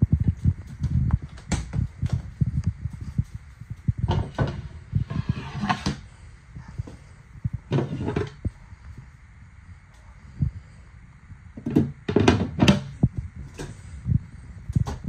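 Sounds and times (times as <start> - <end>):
sink cover scraping: 4.1 - 6.0.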